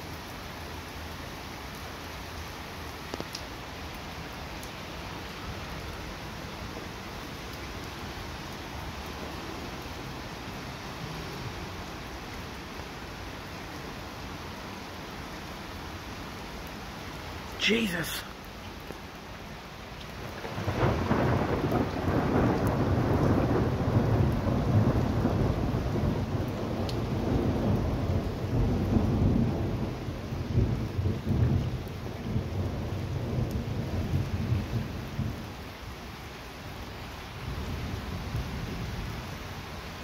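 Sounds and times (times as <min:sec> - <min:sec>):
steady rain: 0:00.0 - 0:40.0
thunder rumbling: 0:20.3 - 0:30.0.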